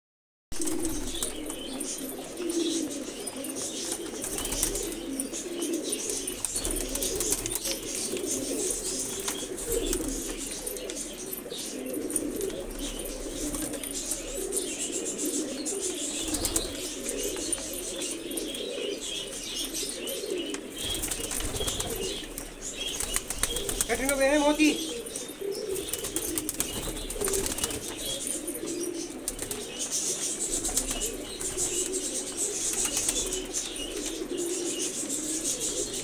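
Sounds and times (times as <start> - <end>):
pigeons cooing: 0.5 - 36.0
wings flapping: 0.6 - 5.2, 6.1 - 10.5, 16.2 - 17.7, 20.8 - 28.4, 29.1 - 34.3.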